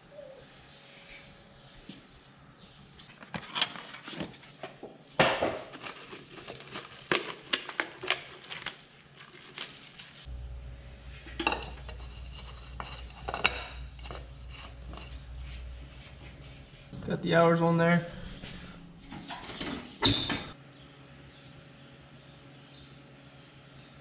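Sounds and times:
low steady hum: 5.6s - 24.0s.

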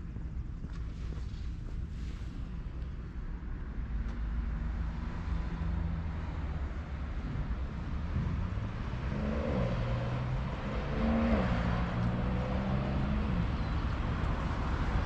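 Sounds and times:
steady low rumble: 0.0s - 9.2s.

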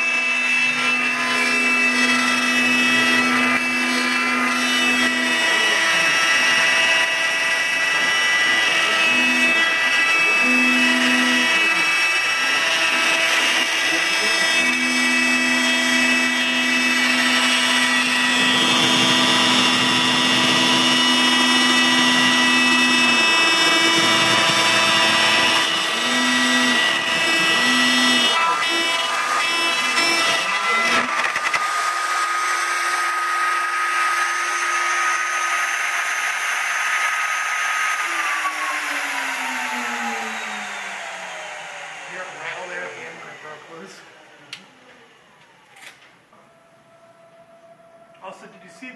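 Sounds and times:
router spindle whine: 0.0s - 48.9s
low machine tone: 46.3s - 48.9s.

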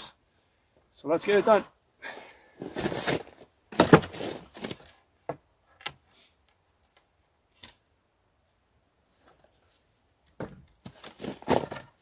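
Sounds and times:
wooden boards scraping: 10.4s - 12.0s.

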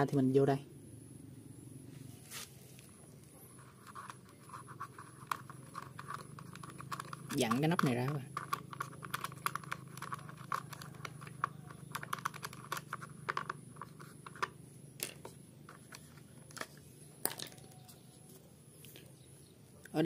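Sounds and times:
small plastic clicks and scratches: 3.5s - 18.4s.

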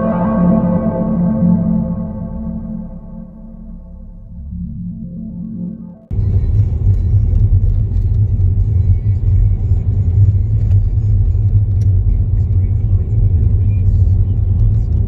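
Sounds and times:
soft ambient music: 0.0s - 15.0s
car engine and road noise: 6.1s - 15.0s.

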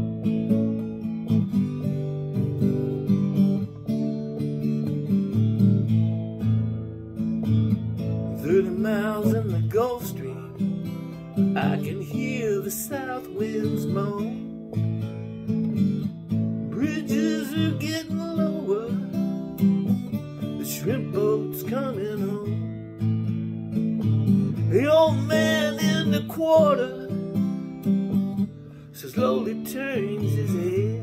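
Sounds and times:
acoustic guitar strumming: 0.0s - 31.0s
man singing: 8.4s - 14.6s, 16.6s - 19.4s, 20.4s - 22.7s, 24.6s - 27.6s, 28.9s - 31.0s.

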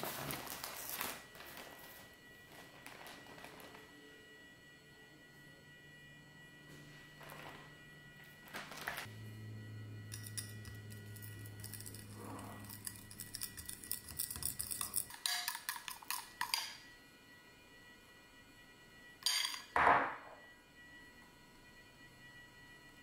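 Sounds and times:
fork clinking against glass bowl: 10.1s - 16.8s.

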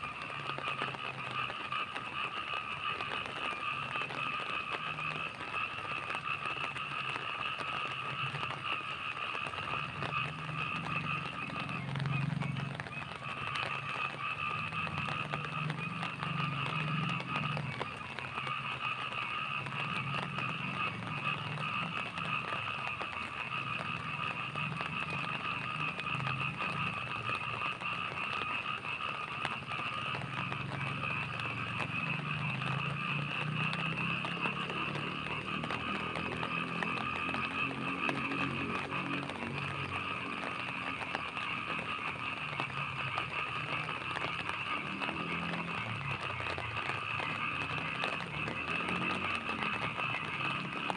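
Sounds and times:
frogs croaking: 0.0s - 50.9s
frogs trilling: 0.0s - 50.9s
rain falling: 0.0s - 50.9s.

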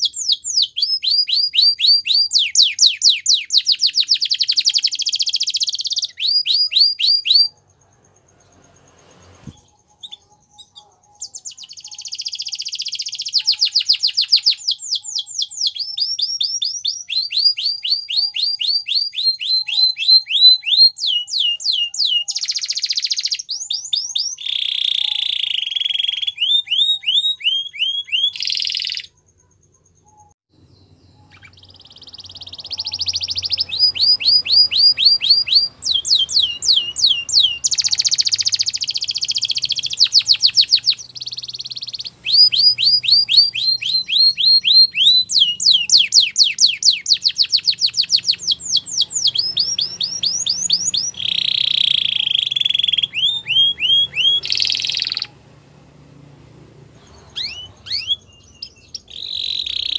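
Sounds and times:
canary singing: 0.0s - 59.9s.

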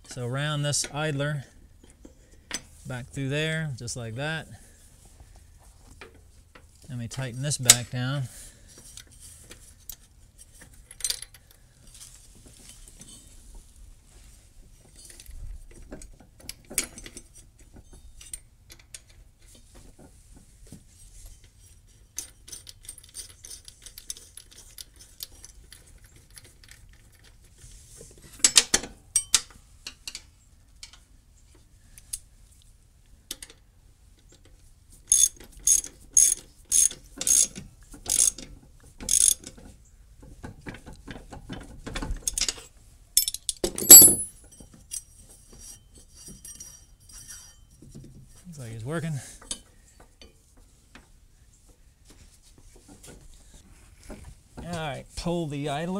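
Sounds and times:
ratchet wrench clicking: 35.1s - 38.5s, 39.1s - 39.4s
metal parts clinking: 43.2s - 45.1s.

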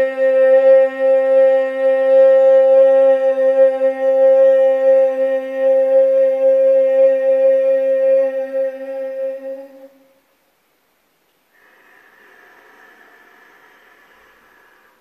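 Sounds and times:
woman chanting one long vowel: 0.0s - 10.1s
faint breath: 11.5s - 15.0s.

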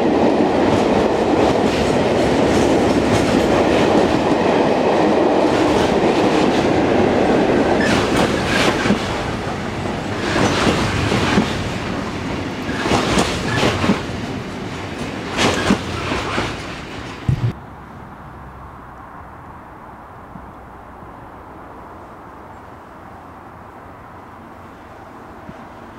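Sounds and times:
freight train wheels clacking: 0.0s - 17.6s
train rumble: 0.0s - 17.6s.

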